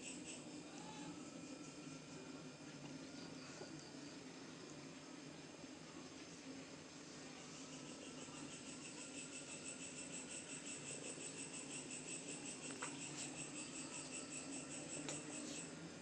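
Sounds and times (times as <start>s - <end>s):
cricket chirping: 0.0s - 4.2s, 7.4s - 16.0s
low steady hum: 0.0s - 16.0s.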